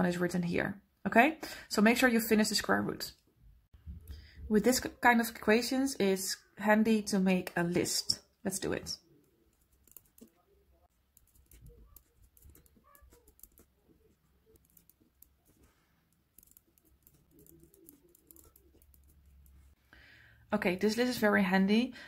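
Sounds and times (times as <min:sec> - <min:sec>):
pen scratching on paper: 0:09.5 - 0:19.8.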